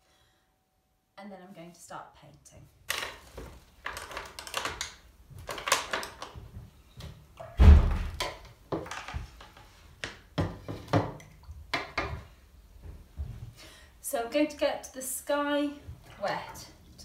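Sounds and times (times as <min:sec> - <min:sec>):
heavy thump: 0:07.6 - 0:08.1.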